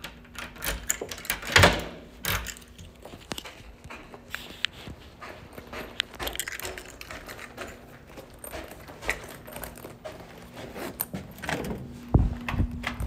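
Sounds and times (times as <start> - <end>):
phone handling clicks and rustling: 0.0 - 4.8.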